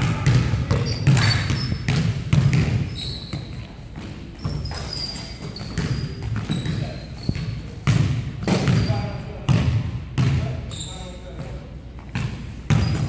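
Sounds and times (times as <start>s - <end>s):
basketball bouncing on wooden floor: 0.0s - 10.6s, 11.3s - 13.0s
sneakers squeaking: 0.0s - 13.0s.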